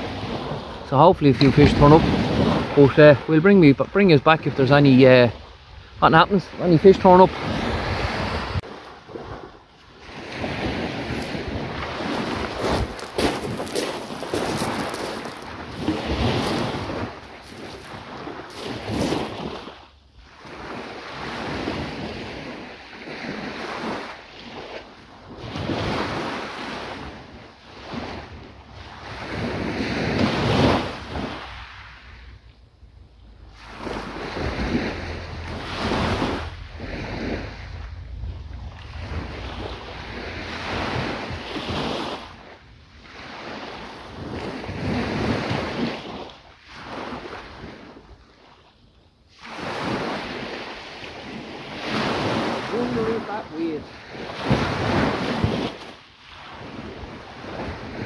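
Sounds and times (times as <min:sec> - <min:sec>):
wind buffeting microphone: 0:00.0 - 0:46.2
waves breaking on a beach: 0:00.0 - 0:58.0.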